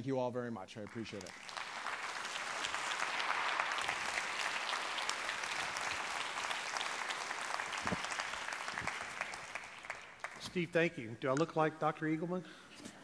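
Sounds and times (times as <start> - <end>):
large audience applauding: 0.8 - 10.5.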